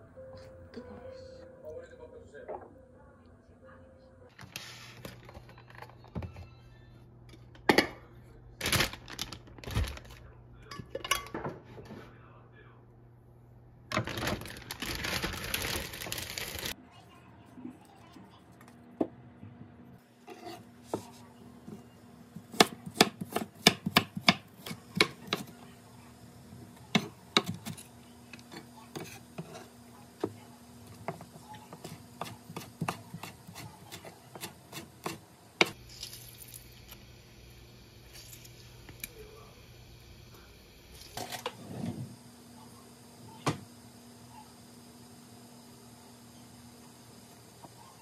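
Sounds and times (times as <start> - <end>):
knife chopping on wooden board: 22.4 - 25.5, 31.1 - 35.8.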